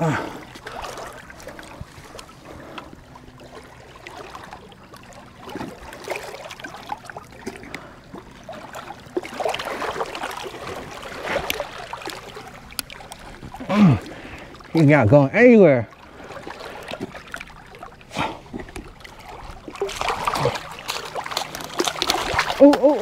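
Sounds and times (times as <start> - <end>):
water splashing against rocks: 16.3 - 23.0.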